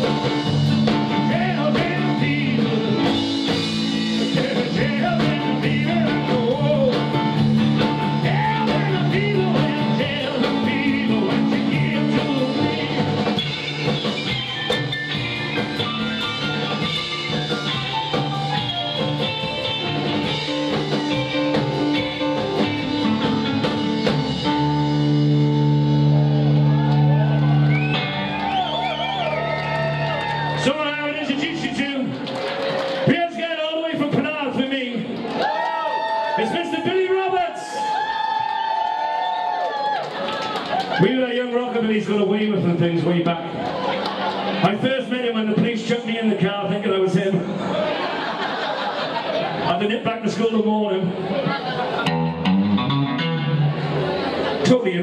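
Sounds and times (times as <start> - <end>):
double bass: 0.0 - 30.7, 51.9 - 54.7
electric guitar: 0.0 - 30.7, 51.2 - 54.7
piano: 0.0 - 33.1
drums: 0.0 - 55.0
person singing: 1.1 - 3.2, 4.2 - 7.2, 8.2 - 13.6.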